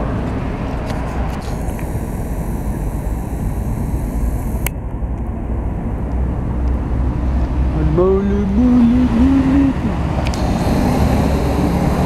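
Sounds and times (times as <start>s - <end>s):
cars driving past: 4.7s - 12.0s
sharp click: 10.2s - 10.6s.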